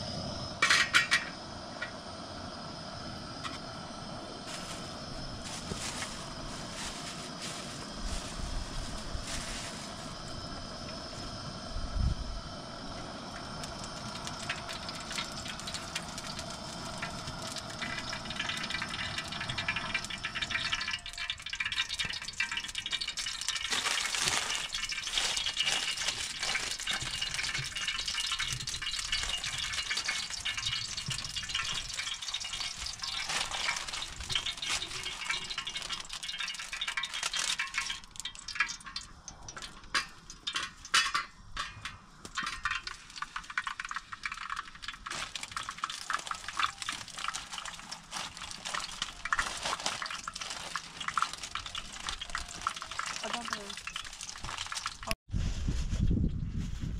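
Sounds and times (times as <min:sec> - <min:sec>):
fat sizzling in a pan: 0:00.0 - 0:55.2
sharp crackling pops: 0:13.3 - 0:55.2.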